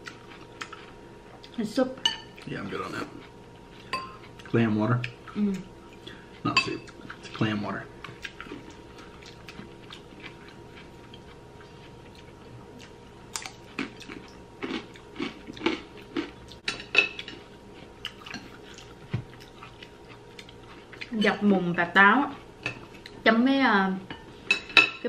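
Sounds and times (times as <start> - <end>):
chewing and mouth smacks: 0.0 - 1.6, 8.0 - 21.2.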